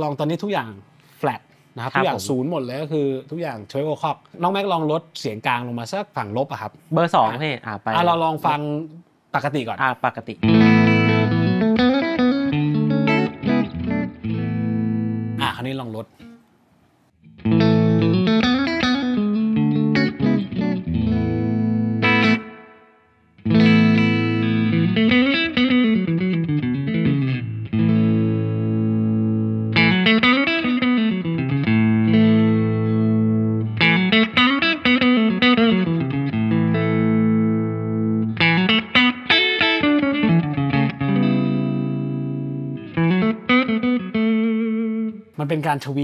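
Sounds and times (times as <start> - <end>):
electric guitar chords and notes: 10.4 - 15.4, 17.2 - 45.4.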